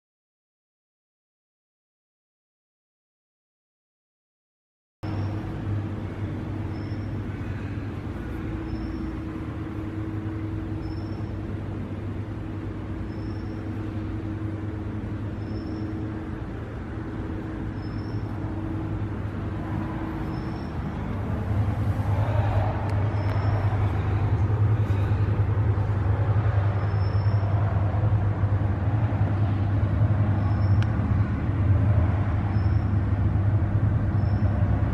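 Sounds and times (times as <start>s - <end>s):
faint high chirp: 5.0s - 5.5s, 6.6s - 7.3s, 8.3s - 9.4s, 10.0s - 11.5s, 13.0s - 14.1s, 15.3s - 16.1s, 17.6s - 18.4s, 20.2s - 21.1s, 23.0s - 24.0s, 26.7s - 27.6s, 30.4s - 30.9s, 32.5s - 33.0s, 34.2s - 34.6s.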